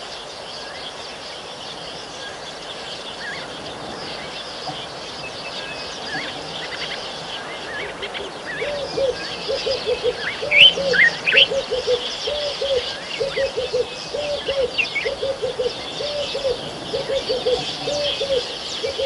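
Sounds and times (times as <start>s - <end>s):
birds chirping and twittering: 0.0s - 19.0s
bird cooing: 7.8s - 19.0s.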